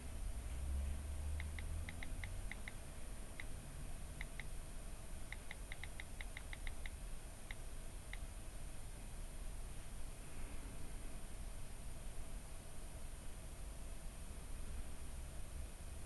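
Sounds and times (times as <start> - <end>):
phone keyboard clicks: 1.4 - 2.8, 5.3 - 7.0.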